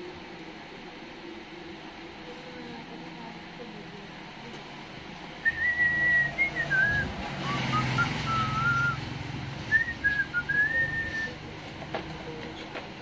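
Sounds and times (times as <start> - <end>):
person whistling a tune: 5.4 - 9.0, 9.7 - 11.4.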